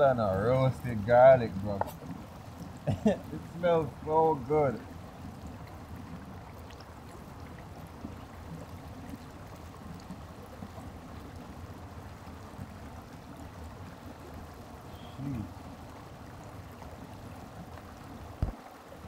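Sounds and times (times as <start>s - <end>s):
stream running over rocks: 0.0s - 19.0s.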